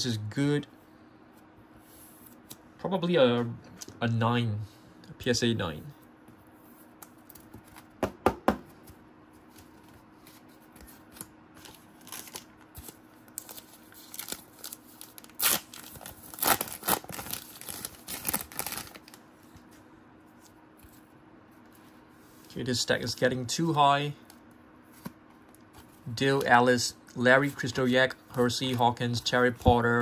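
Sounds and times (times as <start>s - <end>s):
wrapper tearing and crinkling: 11.6s - 19.2s.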